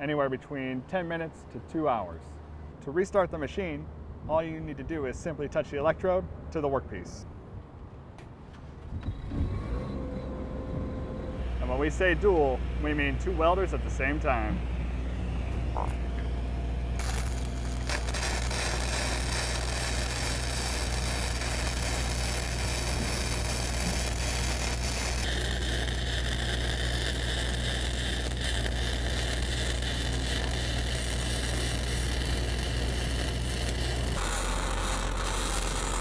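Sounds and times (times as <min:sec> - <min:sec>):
diesel engine humming: 0:09.8 - 0:36.0
welding arcs crackling: 0:17.0 - 0:36.0.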